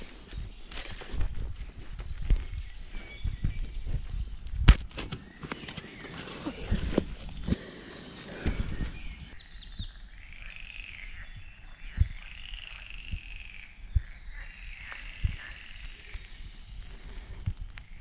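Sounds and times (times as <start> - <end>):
birds calling: 0.0 - 18.0.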